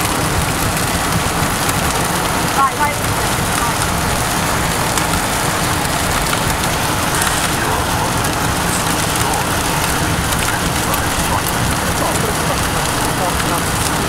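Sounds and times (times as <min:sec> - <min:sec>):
rain pattering on car: 0:00.0 - 0:14.0
road and wind rumble: 0:00.0 - 0:14.0.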